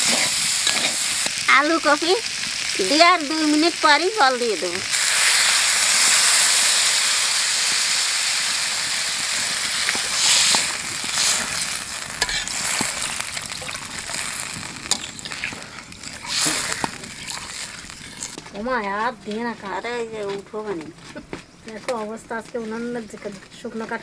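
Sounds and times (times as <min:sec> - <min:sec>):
water sizzling in hot pan: 0:00.0 - 0:18.8.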